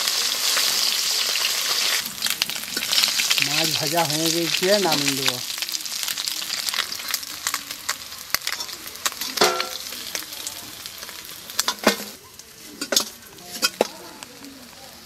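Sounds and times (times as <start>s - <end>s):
fish sizzling in hot oil: 0.0s - 15.0s
metal spatula scraping and clinking: 11.6s - 13.9s.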